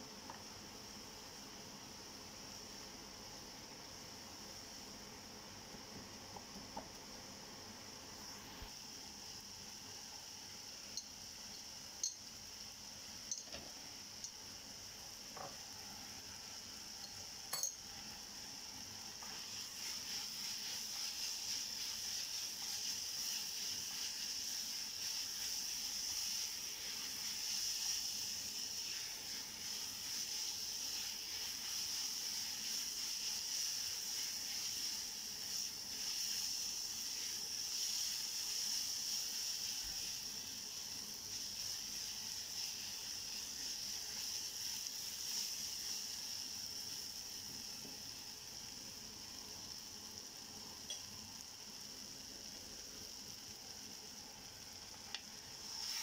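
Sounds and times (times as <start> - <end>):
onions sizzling in oil: 0.0 - 56.0
spatula stirring in pan: 17.0 - 48.2, 55.6 - 56.0.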